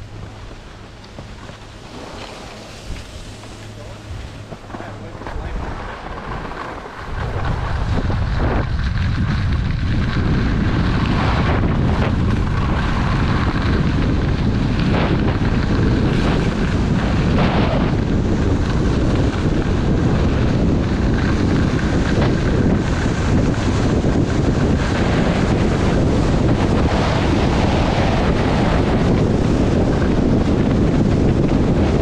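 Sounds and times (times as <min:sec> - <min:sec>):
skis scraping on snow: 0:00.0 - 0:32.0
wind buffeting microphone: 0:00.0 - 0:32.0
skis hissing on snow: 0:01.5 - 0:08.4.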